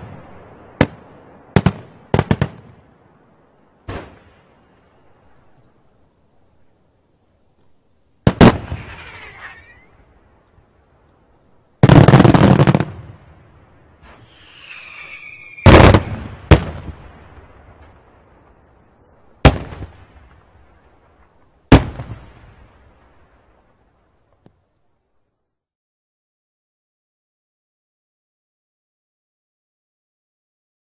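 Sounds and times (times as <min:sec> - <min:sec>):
fireworks exploding: 0:00.0 - 0:03.1, 0:03.8 - 0:04.9, 0:08.2 - 0:10.2, 0:11.8 - 0:24.4
firework whistle falling: 0:08.7 - 0:10.0, 0:14.1 - 0:16.2.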